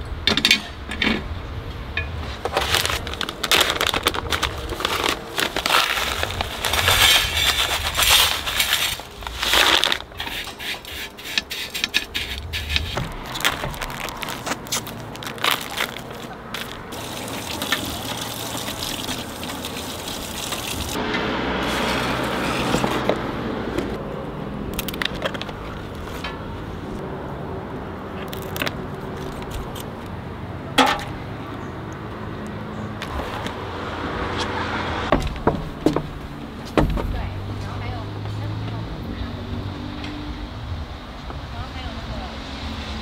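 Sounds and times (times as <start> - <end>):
running tap water: 16.9 - 21.0.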